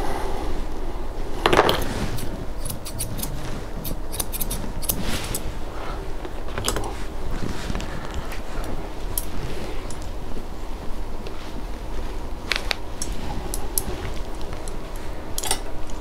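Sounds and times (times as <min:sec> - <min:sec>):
grooming shears snipping hair: 0:01.8 - 0:05.5.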